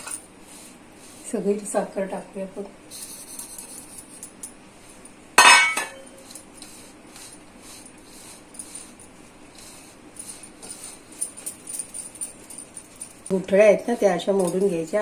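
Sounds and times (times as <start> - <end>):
metallic clink on steel bowl: 5.4 - 6.4.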